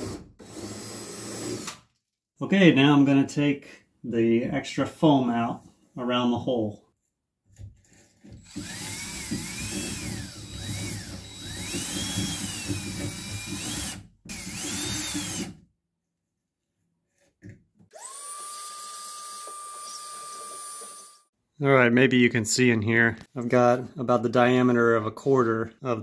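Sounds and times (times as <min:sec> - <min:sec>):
cordless drill spinning: 0:00.0 - 0:01.8, 0:08.2 - 0:15.6, 0:17.9 - 0:21.2.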